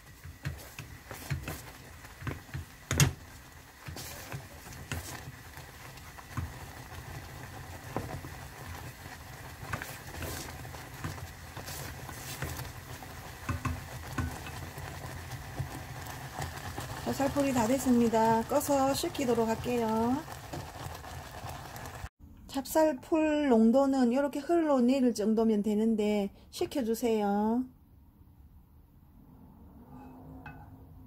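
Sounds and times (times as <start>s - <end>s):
wooden spoon knocking and scraping pot: 0.0s - 20.9s.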